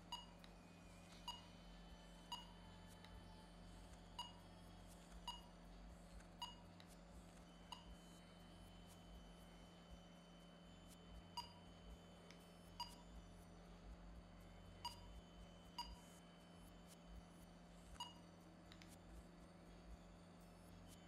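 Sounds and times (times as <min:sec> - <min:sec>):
faint ticks: 0:02.2 - 0:21.0
faint short electronic beeps: 0:10.8 - 0:13.2, 0:18.0 - 0:18.3.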